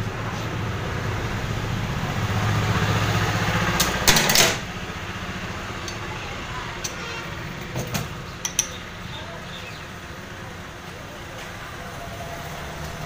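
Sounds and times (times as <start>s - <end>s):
loud clatter: 3.8s - 4.7s.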